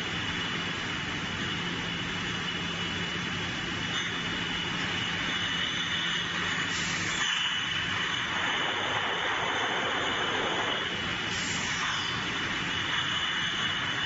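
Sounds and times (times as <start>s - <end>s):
conveyor line running: 0.0s - 14.0s
thin high whine: 3.8s - 14.0s
low hum: 7.4s - 11.2s
brief hisses: 11.3s - 12.2s.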